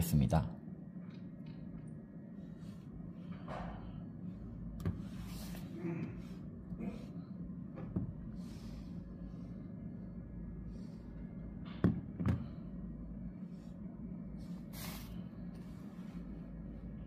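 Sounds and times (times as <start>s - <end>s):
low room hum: 0.0s - 17.0s
hand brushing surface: 4.9s - 5.8s, 14.4s - 16.4s.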